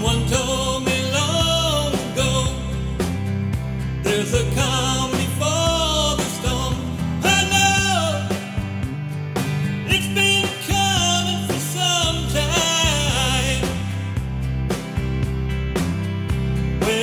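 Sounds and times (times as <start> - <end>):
man singing: 0.0 - 3.1, 3.9 - 8.9, 9.8 - 14.2, 16.7 - 17.0
instrumental accompaniment: 0.0 - 17.0
low bass line: 0.0 - 17.0.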